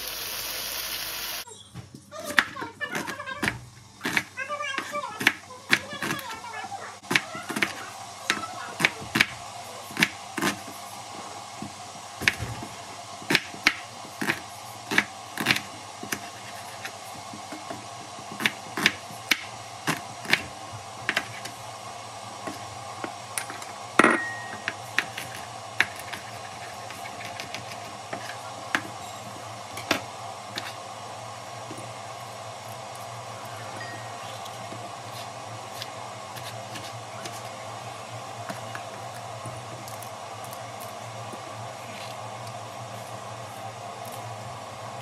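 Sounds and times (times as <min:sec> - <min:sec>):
steady low hum: 0:02.8 - 0:45.0.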